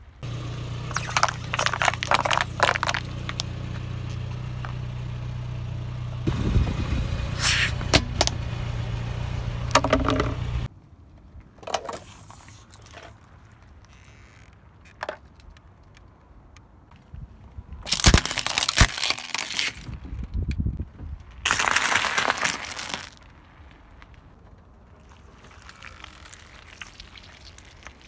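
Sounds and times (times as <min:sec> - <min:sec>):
car engine running: 0:00.2 - 0:10.7
tyre crushing objects: 0:00.9 - 0:03.5, 0:17.9 - 0:19.9.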